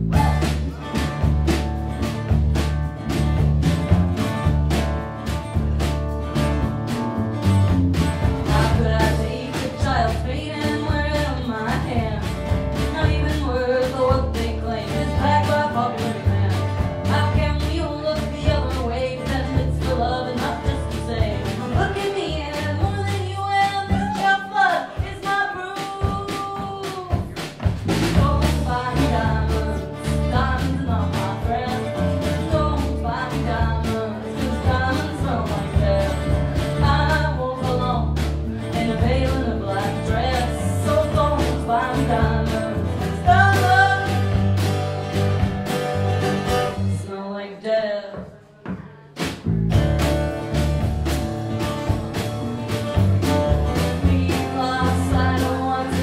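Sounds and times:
woman singing: 0:00.0 - 0:01.3, 0:08.1 - 0:44.7, 0:46.6 - 0:49.3, 0:52.1 - 0:56.0
upright double bass: 0:00.0 - 0:24.3, 0:27.3 - 0:47.0, 0:49.2 - 0:56.0
drum kit: 0:00.0 - 0:47.1, 0:48.1 - 0:56.0
strummed acoustic guitar: 0:00.0 - 0:47.2, 0:48.7 - 0:56.0.

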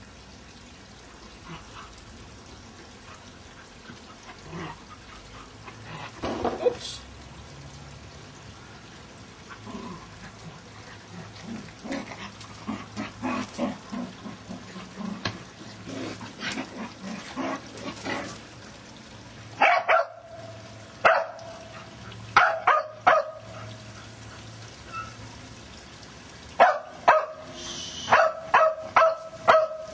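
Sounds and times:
dog growling: 0:09.6 - 0:18.4
dog barking sharply: 0:22.4 - 0:23.4, 0:26.6 - 0:27.4, 0:28.1 - 0:29.8.

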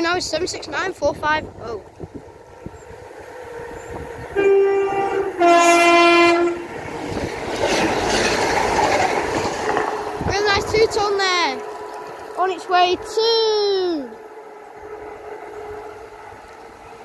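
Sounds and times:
train rumbling through station: 0:00.0 - 0:17.0
two-tone train horn: 0:04.3 - 0:06.8.

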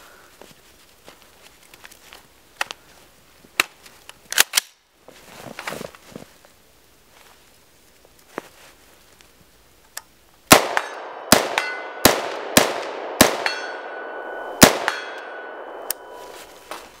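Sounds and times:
rifle shots: 0:10.5 - 0:16.2
ringing metallic clang: 0:10.8 - 0:12.0, 0:13.4 - 0:16.5.

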